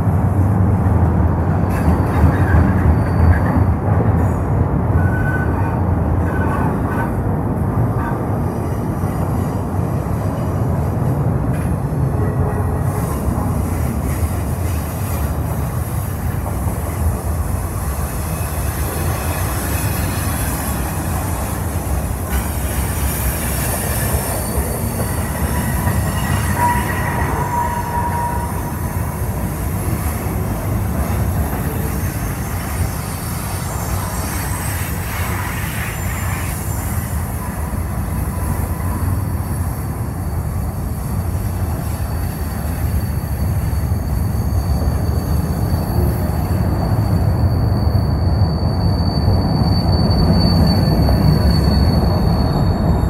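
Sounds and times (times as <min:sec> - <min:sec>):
train wheels rumbling on rails: 0:00.0 - 0:53.0
thin wheel squeal: 0:46.8 - 0:53.0.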